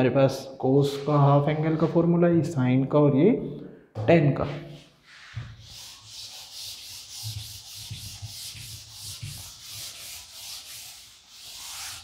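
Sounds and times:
duster rubbing blackboard: 5.0s - 12.0s.

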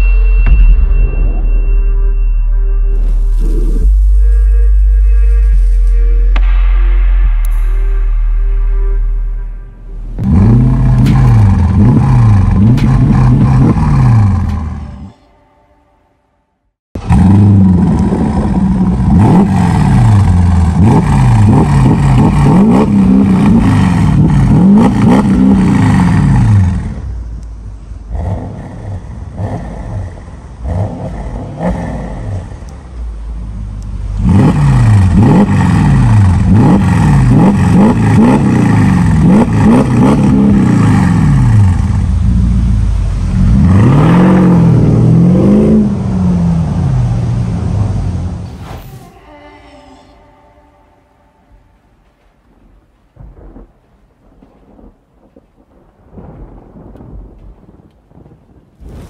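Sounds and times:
car engine revving: 2.9s - 15.2s, 17.0s - 48.8s.

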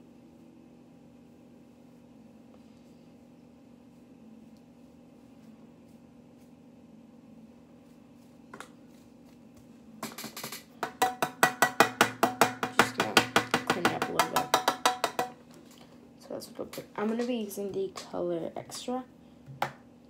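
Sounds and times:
brush tapping plastic palette: 10.8s - 15.4s.

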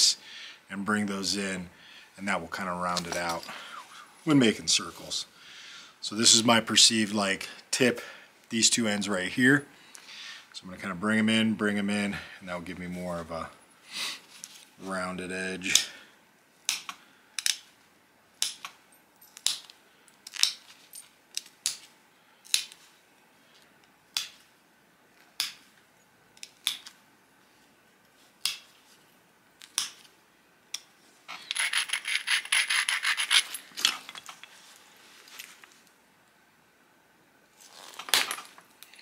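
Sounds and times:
stone flakes snapping clicks: 25.4s - 25.6s, 28.4s - 28.7s, 29.6s - 30.0s
stone abrader rasping on edge: 31.5s - 33.6s.

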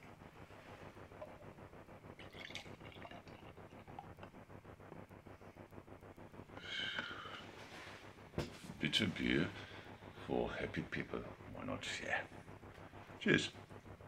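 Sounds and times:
beer pouring into a glass: 2.1s - 4.4s.

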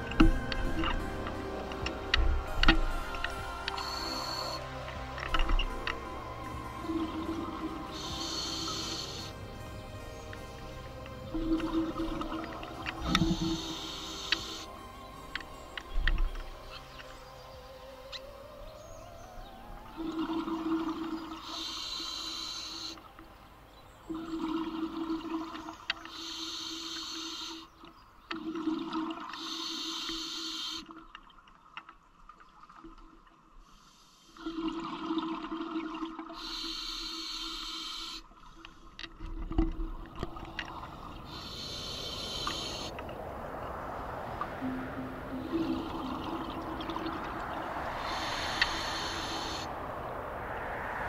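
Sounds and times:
diver breathing through regulator: 7.8s - 9.5s, 26.1s - 27.7s, 36.4s - 39.0s, 40.7s - 43.0s, 47.8s - 49.7s
exhaled bubbles gushing: 39.2s - 51.0s.

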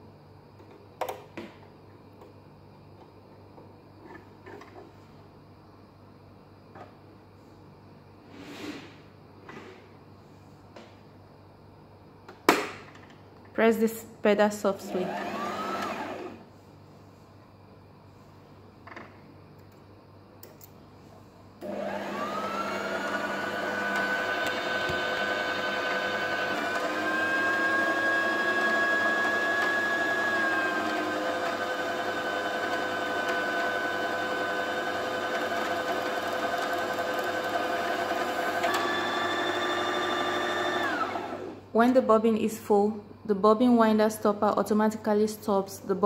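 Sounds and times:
sewing machine motor whining: 14.9s - 16.4s, 21.6s - 41.6s.

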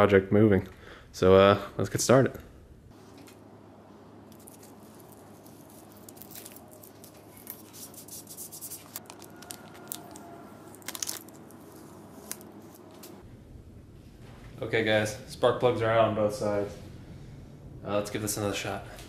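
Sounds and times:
short tearing sounds: 4.3s - 13.2s
tape rustling and crinkling: 4.3s - 13.2s.

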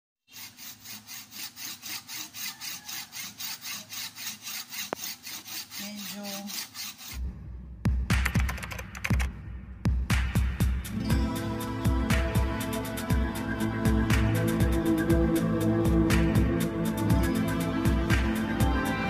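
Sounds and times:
handsaw cutting fruit rind: 0.3s - 7.2s
upbeat music with heavy beat: 7.9s - 19.0s.

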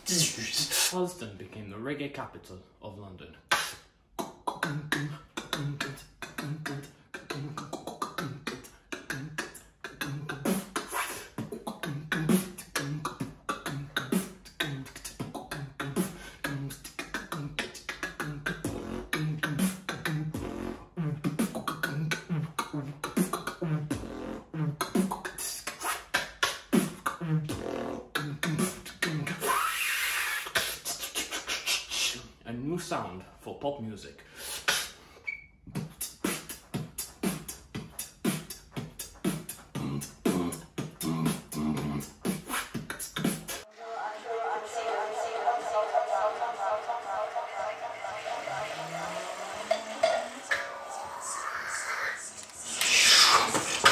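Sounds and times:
beatboxing drum clicks: 3.5s - 32.2s, 34.5s - 35.0s, 35.6s - 43.7s, 49.4s - 53.9s
long mouth hiss: 49.3s - 53.9s.

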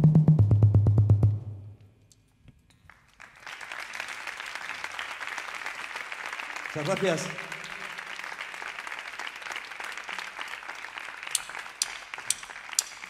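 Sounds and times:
audience applauding: 2.8s - 13.0s.

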